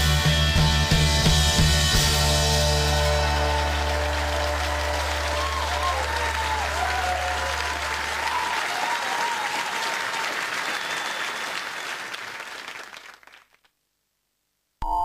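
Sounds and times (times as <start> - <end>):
music: 0.0 - 7.7
audience applauding: 2.6 - 13.7.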